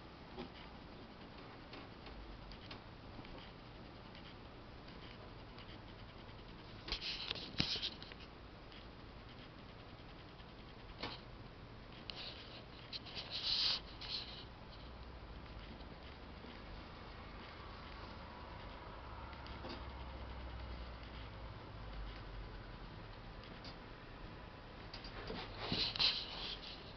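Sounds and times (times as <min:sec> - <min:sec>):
rabbit rustling on a towel: 0:12.1 - 0:15.0, 0:25.2 - 0:26.9.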